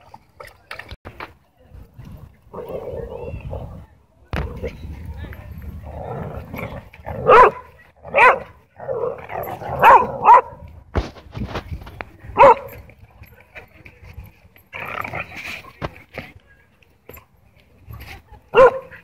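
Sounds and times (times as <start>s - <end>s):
dog barking: 7.2s - 8.5s, 9.8s - 10.6s, 12.4s - 12.7s, 18.6s - 18.9s.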